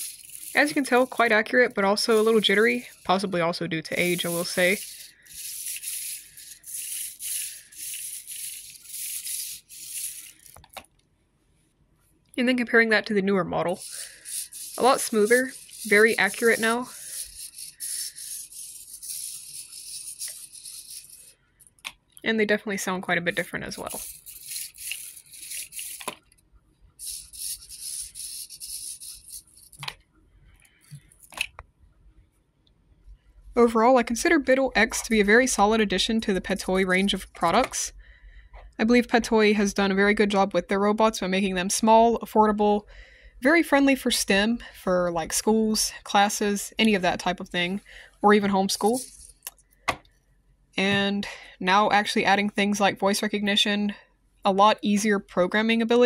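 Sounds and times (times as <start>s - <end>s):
robot servos whirring: 4.0s - 10.6s, 23.9s - 26.1s.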